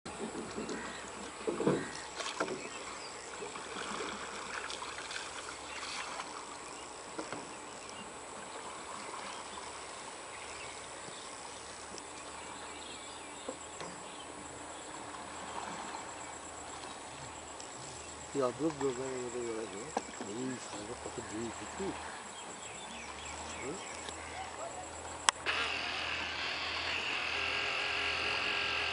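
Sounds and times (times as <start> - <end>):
steady hiss: 6.0 - 24.2
insect chirring: 9.9 - 28.9.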